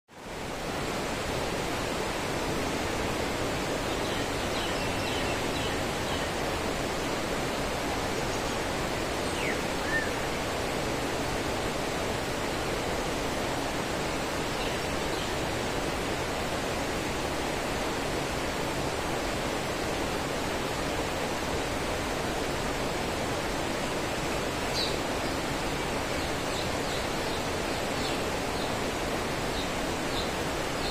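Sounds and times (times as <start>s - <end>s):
stream rushing: 0.1s - 30.9s
faint bird chirps: 9.2s - 10.2s.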